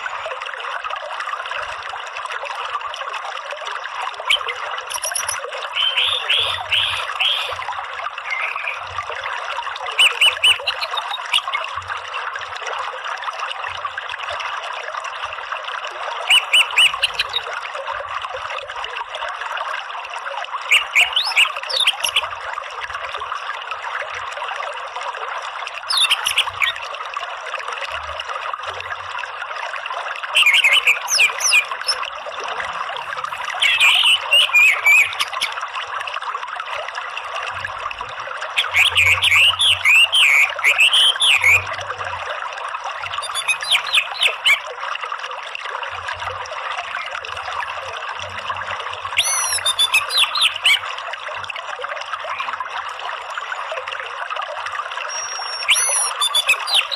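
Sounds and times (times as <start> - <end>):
flowing stream: 0.0 - 56.9
bird chattering notes: 4.3 - 7.6, 8.2 - 8.9, 10.0 - 11.6, 16.3 - 17.4, 20.7 - 22.2, 25.9 - 26.8, 30.4 - 32.0, 33.5 - 35.6, 38.6 - 41.6, 43.2 - 44.6, 49.2 - 50.8, 55.1 - 56.9.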